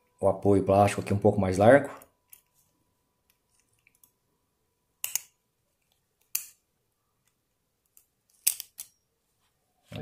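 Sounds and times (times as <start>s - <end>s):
tweezers clicking on plastic: 5.0s - 6.6s.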